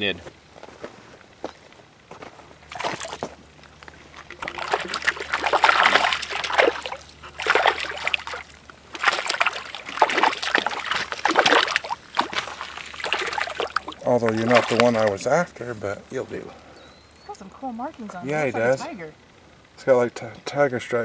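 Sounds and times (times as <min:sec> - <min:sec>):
water splashing: 0:02.7 - 0:03.3, 0:03.9 - 0:15.4
fish thrashing in water: 0:02.7 - 0:15.2.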